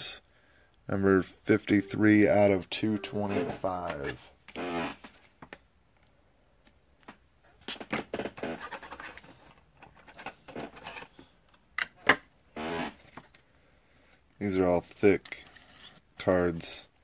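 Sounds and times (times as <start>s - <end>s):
packaging rustling and scraping: 8.4s - 11.3s.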